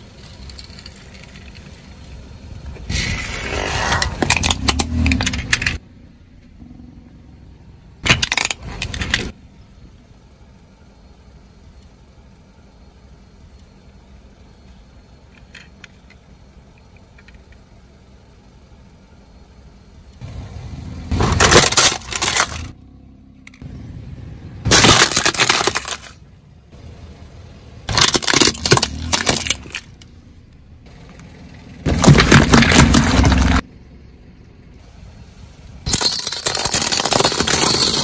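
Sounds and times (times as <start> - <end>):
toy car clicks: 3.9 - 5.8, 35.9 - 38.0
plastic cracking under tyre: 27.9 - 30.0.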